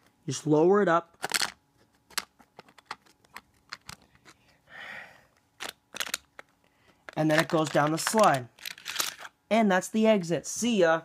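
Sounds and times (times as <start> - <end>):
plastic toy clicks and knocks: 5.6 - 6.5, 7.1 - 9.3.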